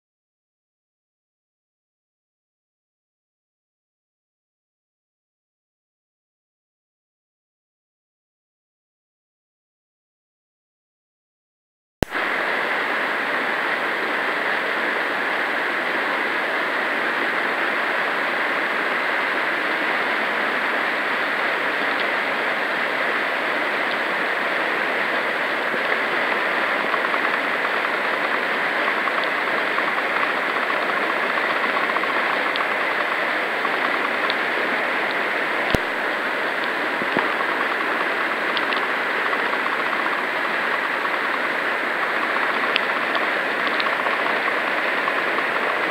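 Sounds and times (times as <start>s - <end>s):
whitewater rapids rushing: 12.2s - 45.9s.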